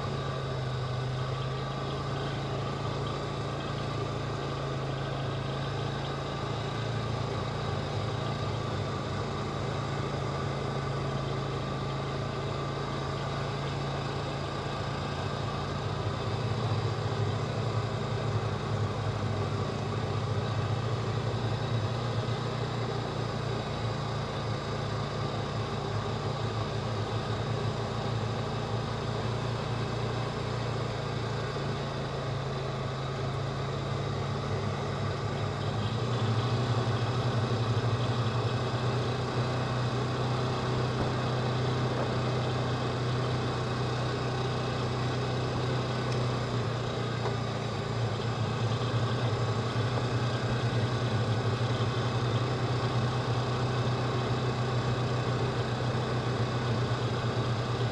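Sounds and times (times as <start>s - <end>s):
utility vehicle engine driving: 0.0s - 57.9s.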